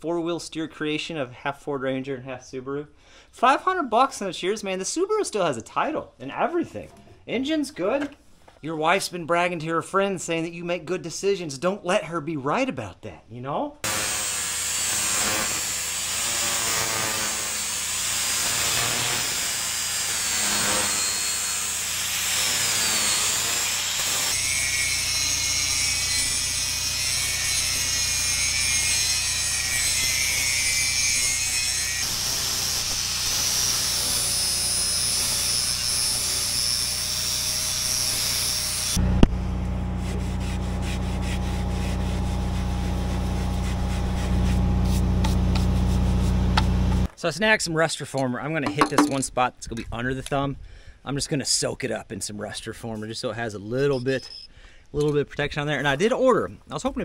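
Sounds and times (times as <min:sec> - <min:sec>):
angle grinder on steel: 0:13.8 - 0:39.0.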